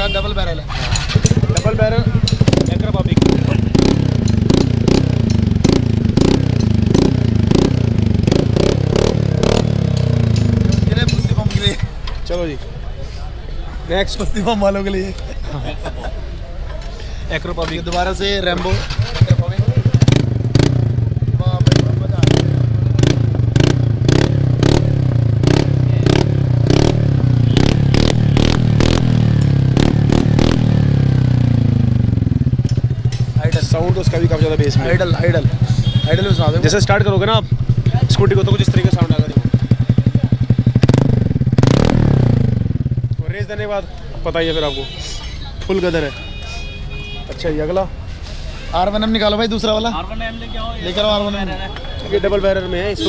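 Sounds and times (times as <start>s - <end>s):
exhaust cracks: 0.6s - 12.3s, 17.6s - 44.1s
scooter engine revving: 0.7s - 11.8s, 18.7s - 43.3s.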